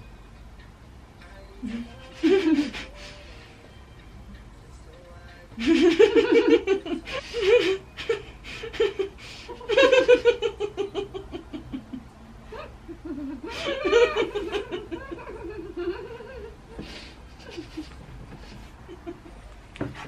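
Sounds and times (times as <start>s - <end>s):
women laughing: 1.6s - 3.1s, 5.6s - 19.5s
quiet giggles: 11.0s - 19.6s.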